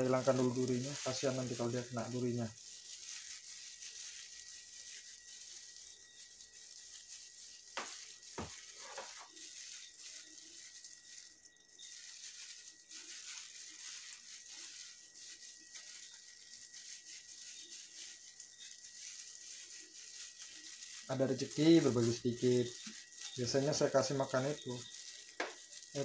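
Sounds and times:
plastic bag crinkling: 0:00.0 - 0:26.0
steady hiss: 0:00.0 - 0:26.0.

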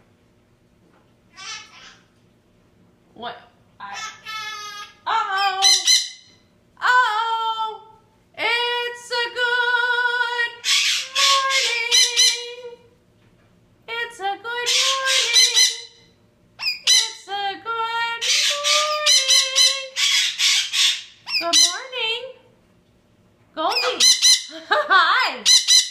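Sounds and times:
macaw calling and screeching: 0:05.6 - 0:06.3, 0:10.6 - 0:12.4, 0:14.7 - 0:16.0, 0:18.2 - 0:21.9, 0:23.8 - 0:24.5, 0:25.5 - 0:25.9.

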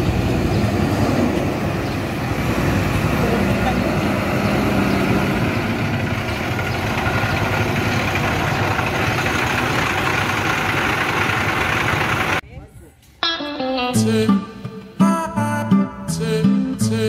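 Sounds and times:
bus engine idling: 0:00.0 - 0:12.4
road traffic passing: 0:00.0 - 0:12.5.

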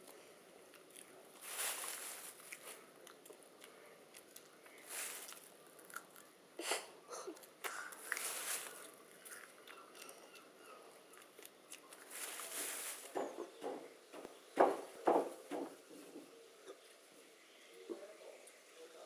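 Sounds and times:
green beans crunching when chewed: 0:00.0 - 0:06.3, 0:07.3 - 0:10.5, 0:11.1 - 0:12.9.

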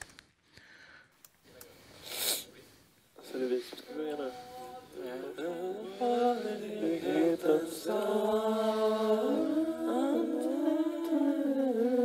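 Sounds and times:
male choir singing a cappella: 0:03.9 - 0:12.0.

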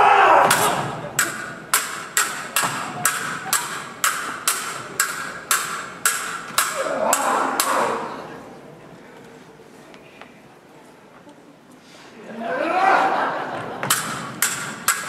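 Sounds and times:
audience voices: 0:00.0 - 0:14.9
swords clashing: 0:00.1 - 0:08.2, 0:13.8 - 0:15.0.

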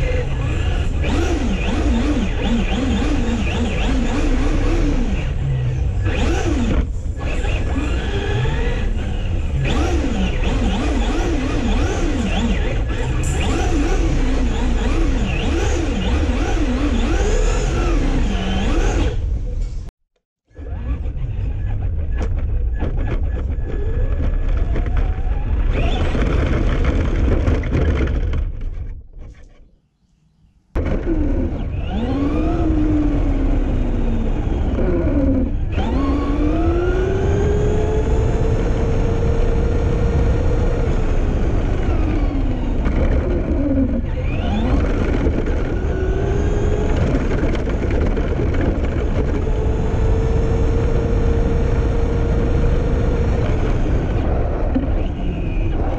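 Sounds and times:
tyre and wind noise: 0:20.6 - 0:29.4, 0:30.8 - 0:55.9
electric motor and gear whine: 0:30.8 - 0:55.9.

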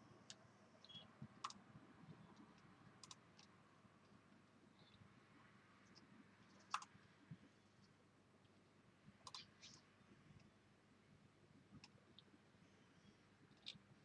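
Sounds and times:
computer mouse clicks: 0:01.4 - 0:01.6, 0:03.0 - 0:03.5, 0:06.6 - 0:07.0, 0:09.2 - 0:09.8.

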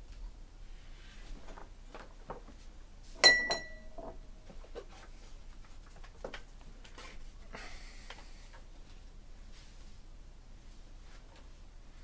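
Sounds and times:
bright ringing ding: 0:03.2 - 0:04.0.

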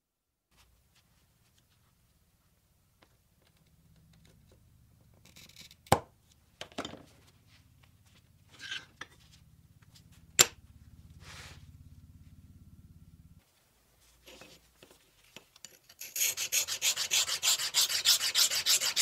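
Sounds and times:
glass cutter scoring glass: 0:15.9 - 0:19.0.

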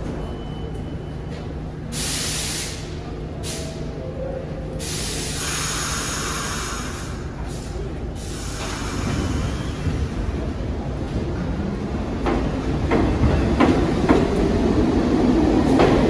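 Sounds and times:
train pulling out rumble: 0:00.0 - 0:16.0
train air system hissing: 0:01.9 - 0:04.0, 0:04.7 - 0:09.9.

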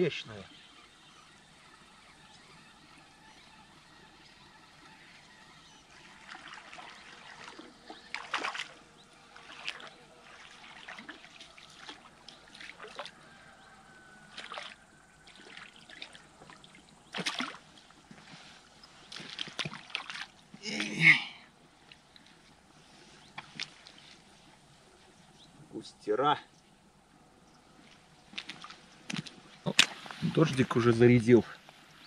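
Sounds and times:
fish splashing at water surface: 0:06.0 - 0:13.2, 0:14.2 - 0:17.8.

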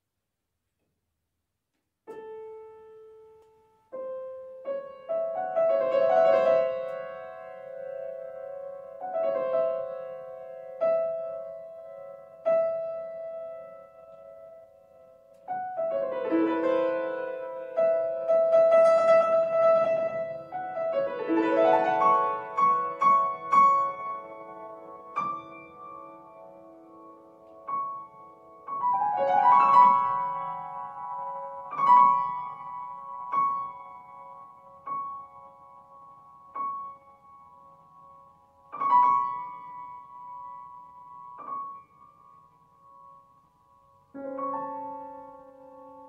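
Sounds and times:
grand piano notes: 0:04.0 - 0:37.6.

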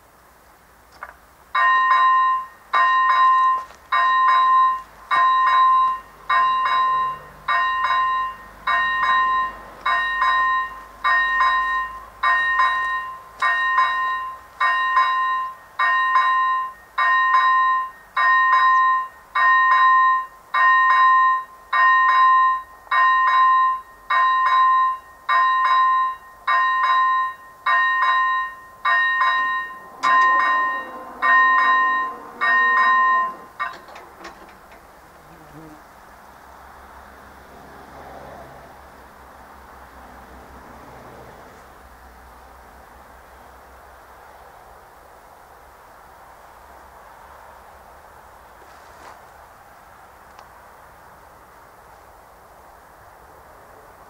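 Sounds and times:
electronic warning bell dinging: 0:01.6 - 0:34.5
barrier motor whine: 0:29.3 - 0:34.8.

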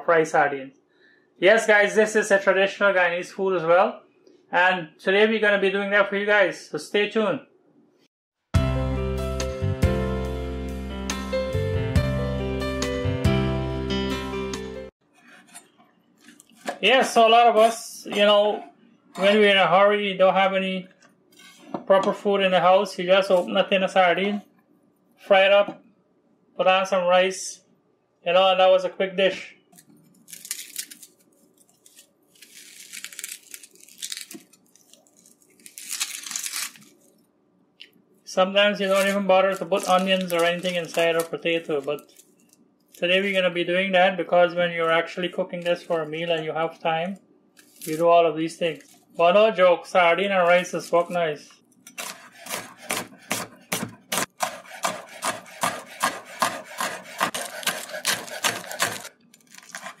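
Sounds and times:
onion skin crackling and tearing: 0:29.8 - 0:37.2, 0:38.8 - 0:43.0, 0:47.6 - 0:49.2, 0:52.0 - 1:00.0
knife chopping on wooden board: 0:51.9 - 1:00.0.

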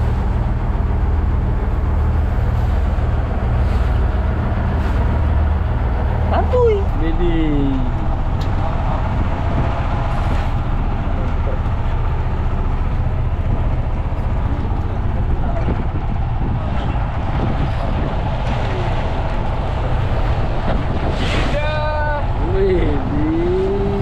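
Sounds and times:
boat engine droning: 0:00.0 - 0:24.0
water noise: 0:00.0 - 0:24.0
wind noise: 0:07.9 - 0:24.0.

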